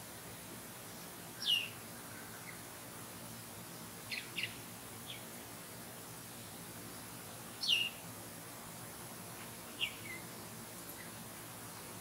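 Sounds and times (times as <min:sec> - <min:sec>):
songbird calling: 0:00.9 - 0:02.6, 0:03.7 - 0:05.3, 0:07.6 - 0:08.0, 0:09.7 - 0:11.2.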